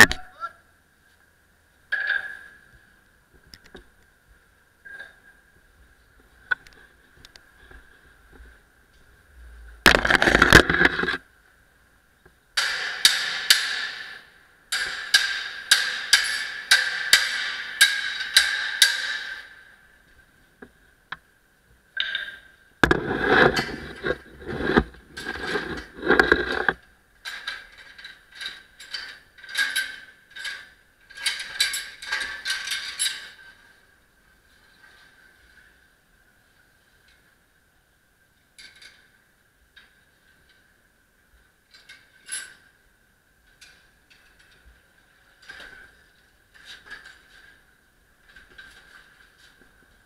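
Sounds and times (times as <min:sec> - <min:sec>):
metal poles knocking and clanking: 0:01.9 - 0:02.5, 0:09.9 - 0:11.2, 0:12.6 - 0:19.8, 0:22.0 - 0:33.6.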